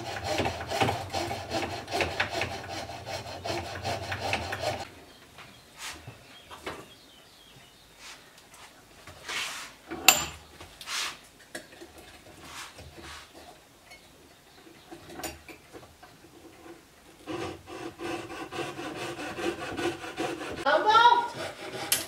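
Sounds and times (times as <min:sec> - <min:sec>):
coping saw cutting wood: 0:00.0 - 0:04.9, 0:17.2 - 0:22.0.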